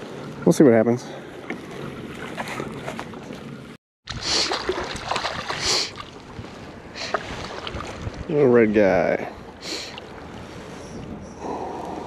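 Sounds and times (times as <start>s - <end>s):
splashing and rustling: 1.3s - 8.4s
water hissing around kayak hull: 4.1s - 4.8s, 5.4s - 7.8s, 9.4s - 12.0s.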